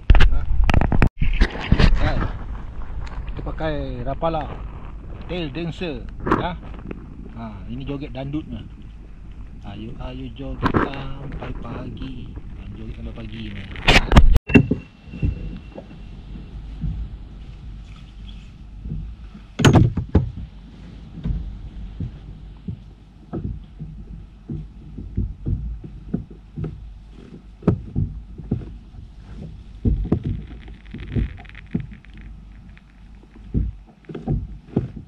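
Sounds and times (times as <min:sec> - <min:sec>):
knocks on kayak hull: 0:18.9 - 0:20.5.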